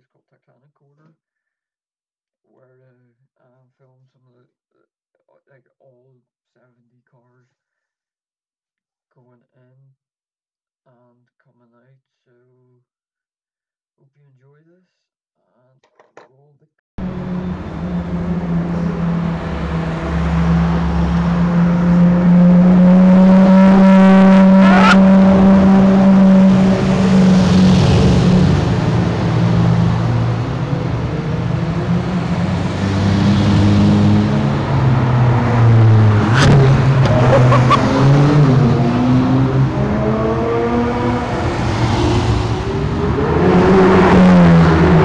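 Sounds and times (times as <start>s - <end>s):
engine rev: 17.0s - 45.0s
sports car engines passing: 17.0s - 45.0s.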